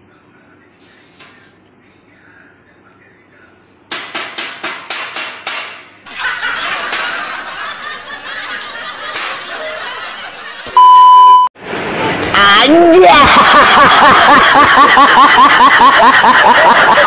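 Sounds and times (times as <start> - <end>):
censor bleep tone: 10.8 - 11.5
person laughing: 13.0 - 17.0.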